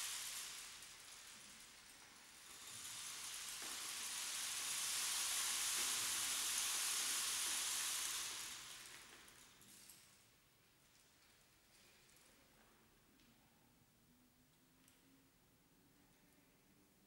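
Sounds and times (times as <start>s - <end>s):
rainstick hiss: 0.0s - 9.6s.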